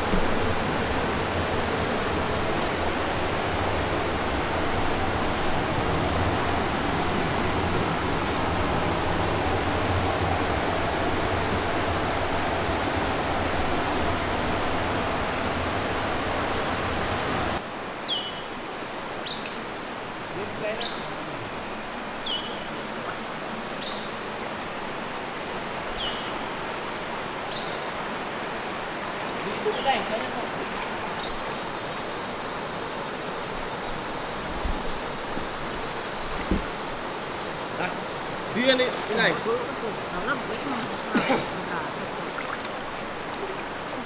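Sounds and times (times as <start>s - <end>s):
high insect drone: 0.0s - 44.0s
bird calling: 25.9s - 26.4s
river water rushing: 40.6s - 44.0s.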